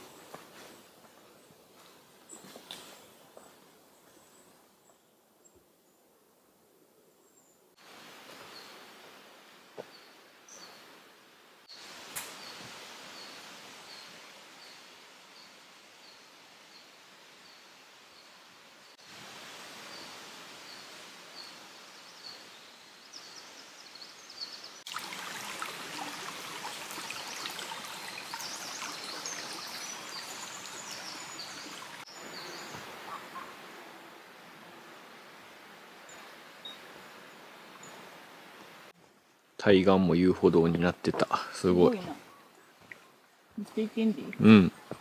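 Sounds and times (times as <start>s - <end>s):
background hiss: 0.0s - 45.0s
birds chirping: 21.4s - 33.9s.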